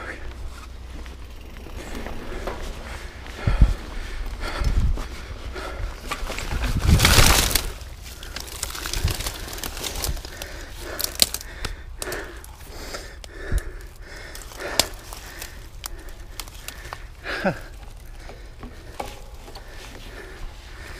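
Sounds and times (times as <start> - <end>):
person breathing hard: 0.0 - 20.9
clicks and rustling on ground: 4.2 - 20.9
bike crashing through brush: 6.0 - 12.7.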